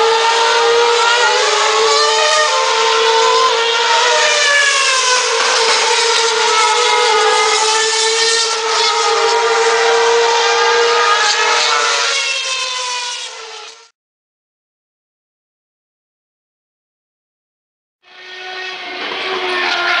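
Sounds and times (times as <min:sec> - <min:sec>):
racing car engines at high revs: 0:00.0 - 0:13.9, 0:18.0 - 0:20.0.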